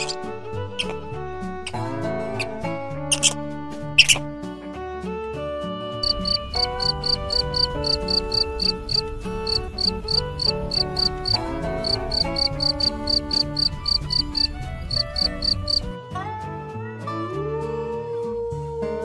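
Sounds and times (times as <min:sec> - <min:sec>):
background music: 0:00.0 - 0:19.0
cricket chirping: 0:06.0 - 0:15.9.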